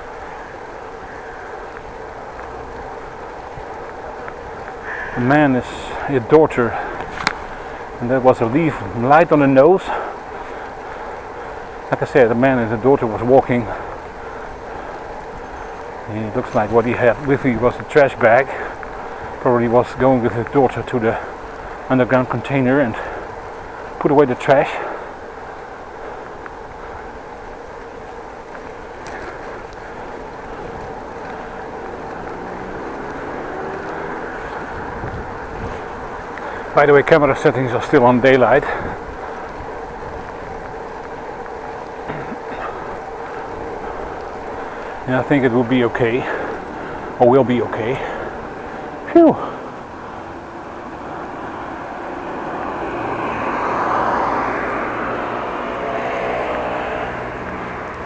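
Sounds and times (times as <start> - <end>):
wind and road noise of bicycle: 0.0 - 58.0
vehicle driving past: 28.6 - 36.5, 42.6 - 58.0.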